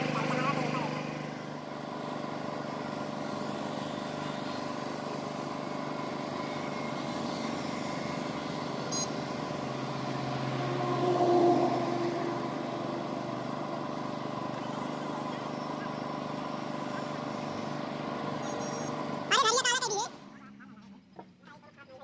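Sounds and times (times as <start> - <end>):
air compressor running: 0.0 - 19.5
engine-like swell: 0.0 - 21.2.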